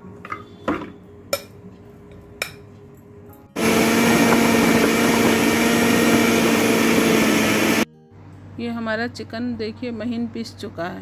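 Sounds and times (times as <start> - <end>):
food processor motor whining: 3.6 - 7.9.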